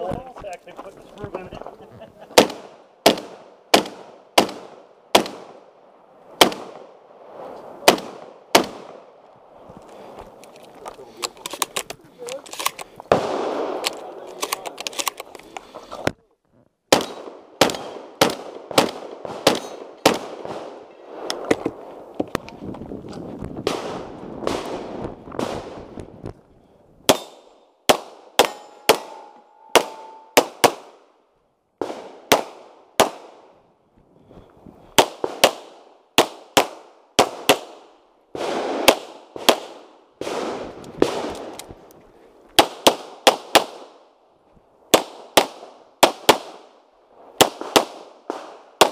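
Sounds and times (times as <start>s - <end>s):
gunshots with echo: 27.1s - 31.0s.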